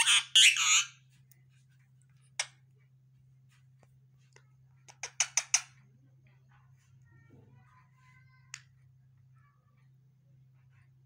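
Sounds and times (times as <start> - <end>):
parakeet shrill chattering calls: 0.0 - 1.0.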